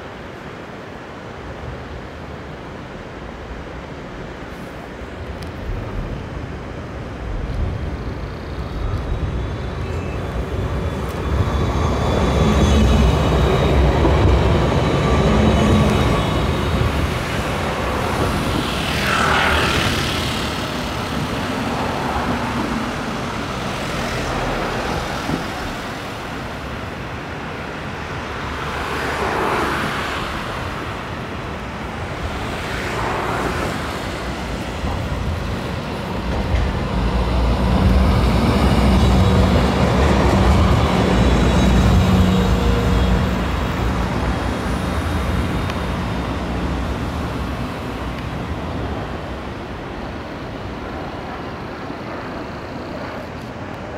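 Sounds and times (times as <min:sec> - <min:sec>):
tram approaching: 0:00.0 - 0:53.9
cars passing: 0:12.1 - 0:26.8, 0:27.5 - 0:51.5.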